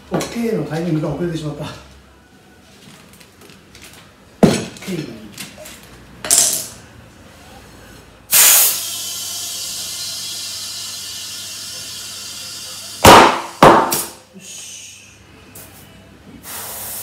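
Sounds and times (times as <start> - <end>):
loud blast of air: 8.3 - 11.2, 16.4 - 17.0
air hissing into tyre: 8.3 - 13.0, 14.4 - 15.8, 16.4 - 17.0.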